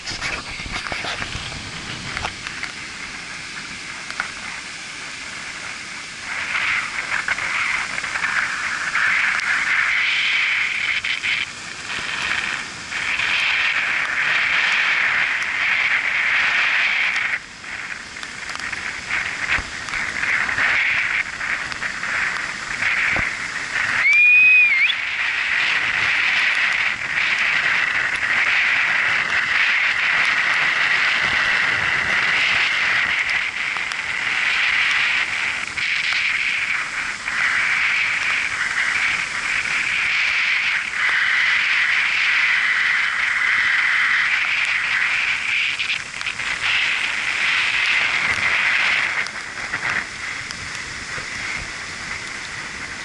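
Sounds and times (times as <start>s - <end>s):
ocean surf breaking: 0.0s - 53.0s
short rising and falling whistle: 24.0s - 25.0s.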